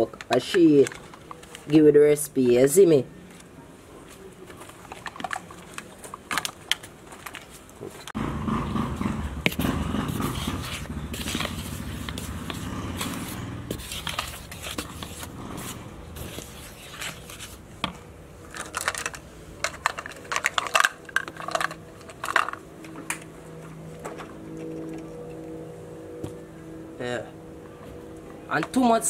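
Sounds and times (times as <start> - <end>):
wooden spoon stirring flour: 9.4 - 17.6
utensils and jar clattering: 18.5 - 22.6.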